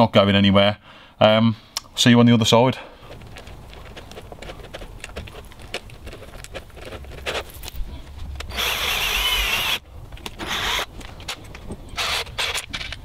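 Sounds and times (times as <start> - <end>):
cordless drill driving screws: 8.5 - 9.8, 10.4 - 10.9, 12.0 - 12.9.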